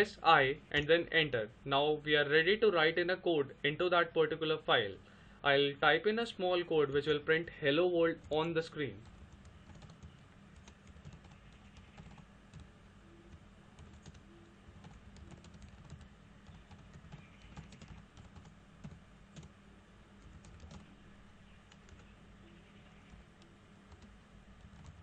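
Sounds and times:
low steady hum: 0:00.0 - 0:25.0
typing on keyboard: 0:09.0 - 0:12.7, 0:13.3 - 0:14.2, 0:14.8 - 0:19.5, 0:20.2 - 0:20.9, 0:21.7 - 0:22.1, 0:23.9 - 0:25.0.

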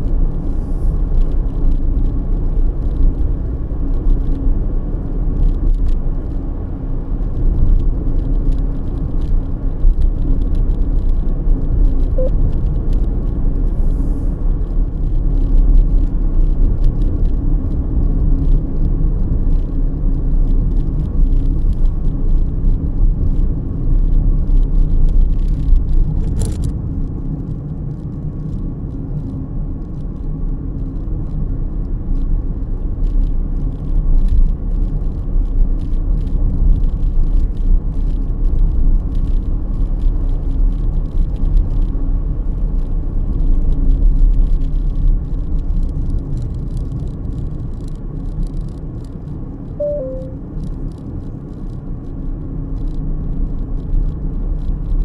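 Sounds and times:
car road noise rumble: 0:00.0 - 0:55.0
brief sharp noise: 0:49.8 - 0:50.4.

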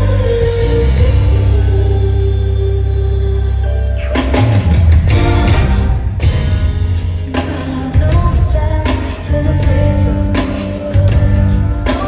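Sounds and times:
woman singing: 0:00.0 - 0:04.3, 0:06.6 - 0:12.0
band with bass and drums: 0:00.0 - 0:12.0.

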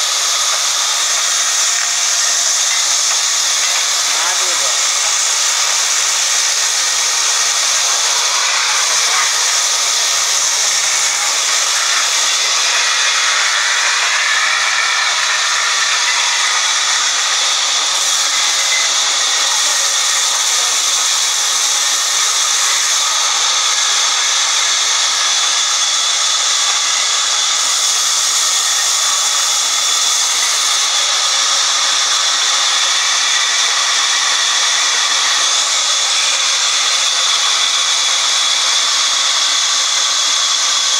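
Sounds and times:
band saw cutting log: 0:00.0 - 0:40.9.

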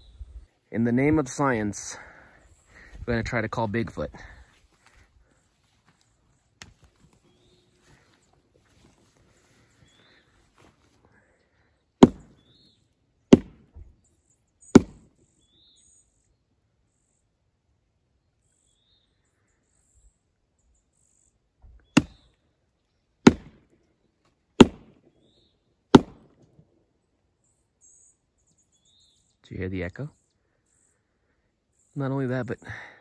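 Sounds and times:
log knocking on log: 0:12.0 - 0:12.3.

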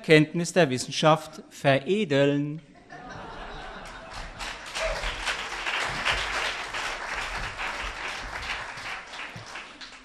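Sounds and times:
audience applauding: 0:03.8 - 0:10.0.

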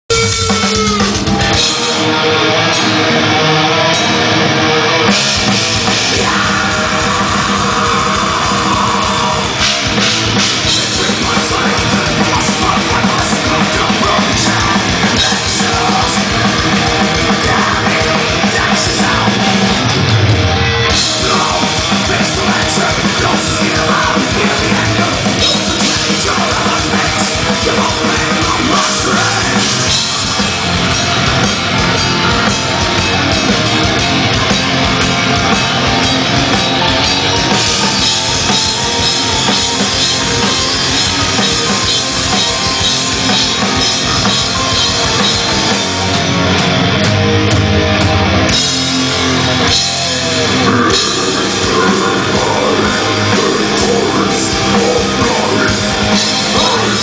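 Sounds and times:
distorted electric guitar: 0:00.0 - 0:57.0
heavy metal band playing live: 0:00.0 - 0:57.0
fast dense drumming: 0:00.1 - 0:57.0.

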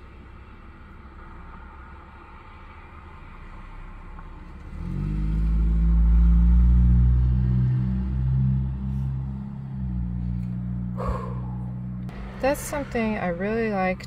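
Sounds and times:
car engine running: 0:08.6 - 0:14.0.

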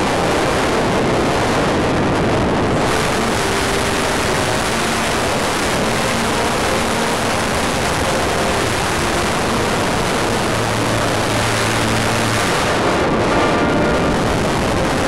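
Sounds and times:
model plane motor hum: 0:02.8 - 0:13.1.

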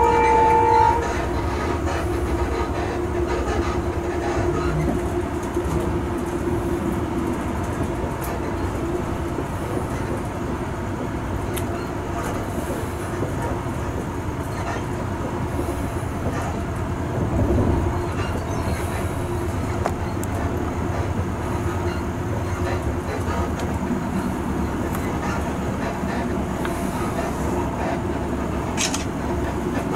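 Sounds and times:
train rumbling on track: 0:00.0 - 0:29.9.

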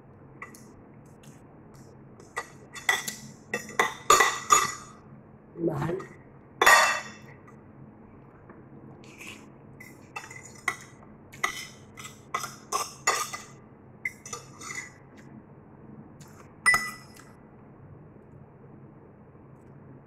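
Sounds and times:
cutlery clinking on a plate: 0:02.3 - 0:04.9, 0:06.6 - 0:07.2, 0:10.2 - 0:15.0, 0:16.7 - 0:17.2.

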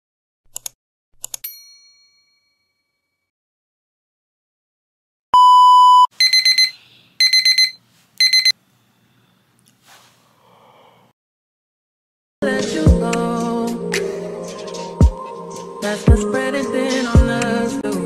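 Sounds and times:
electronic alarm beeping: 0:05.4 - 0:08.6.

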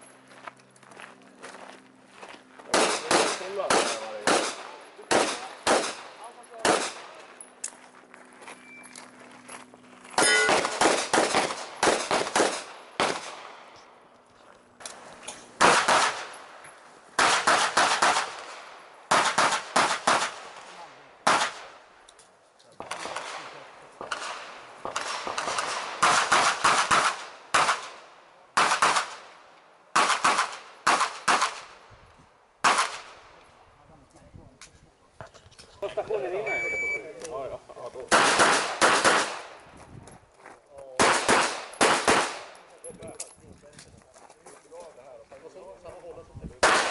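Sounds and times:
rapid pistol fire echoing: 0:02.7 - 0:07.2, 0:10.4 - 0:13.6, 0:15.6 - 0:16.3, 0:17.2 - 0:20.6, 0:21.2 - 0:21.7, 0:22.8 - 0:28.0, 0:28.6 - 0:29.3, 0:29.9 - 0:31.8, 0:32.6 - 0:33.2, 0:38.1 - 0:39.6, 0:41.0 - 0:42.6, 0:46.6 - 0:46.9.

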